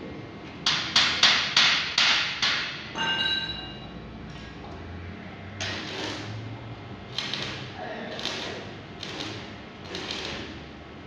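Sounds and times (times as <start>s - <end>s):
hammer striking steel tube: 0.6s - 3.8s
metallic ring: 2.9s - 4.0s.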